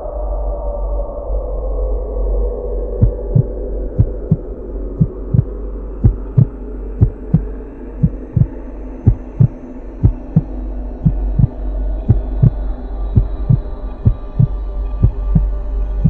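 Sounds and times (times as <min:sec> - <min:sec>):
steady low drone: 0:00.0 - 0:16.0
heartbeat thumps: 0:03.0 - 0:12.6, 0:13.2 - 0:15.5.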